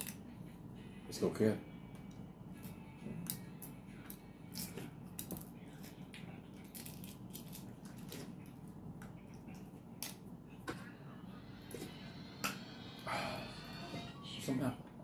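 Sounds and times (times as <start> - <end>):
eggshell crackling: 6.6 - 8.6.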